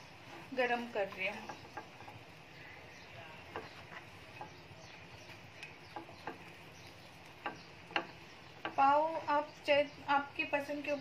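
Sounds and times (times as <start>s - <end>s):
butter sizzling in a pan: 0.0s - 10.4s
small crackles: 0.1s - 8.8s.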